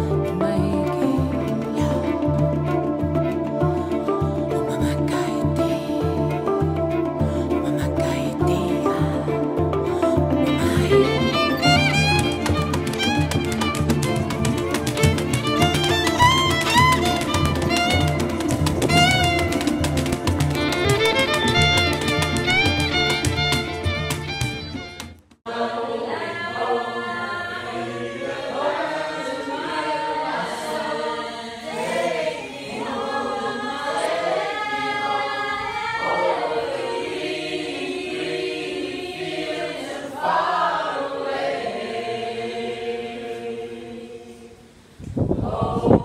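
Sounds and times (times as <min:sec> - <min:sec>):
choir singing: 0:00.2 - 0:18.9, 0:25.5 - 0:46.0.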